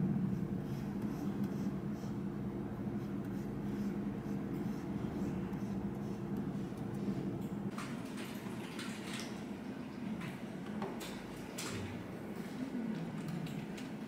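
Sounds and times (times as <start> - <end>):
steady low hum: 0.0 - 8.2
stylus scratching drawing tablet: 0.3 - 6.7.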